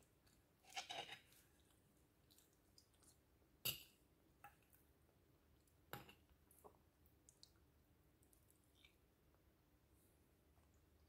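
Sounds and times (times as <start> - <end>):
fork scraping ceramic bowl: 0.6 - 1.4.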